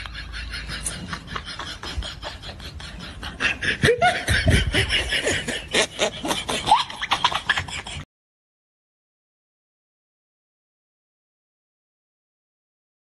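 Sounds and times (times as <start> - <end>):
people laughing: 0.0 - 8.1.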